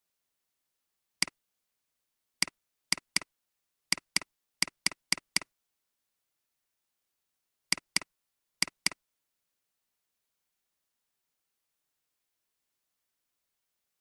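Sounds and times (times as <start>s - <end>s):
mouse button double-clicks: 7.7s - 9.0s.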